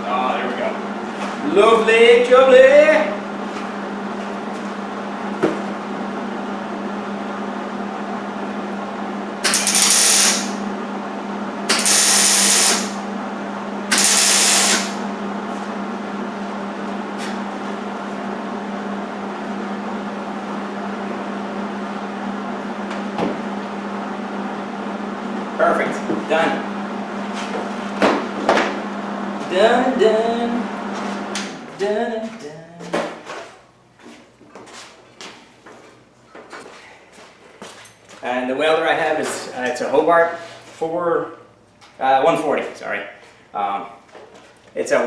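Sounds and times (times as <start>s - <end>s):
steady low hum: 0.0s - 45.0s
welder arc crackling: 9.4s - 10.6s, 11.7s - 13.0s, 13.9s - 15.0s.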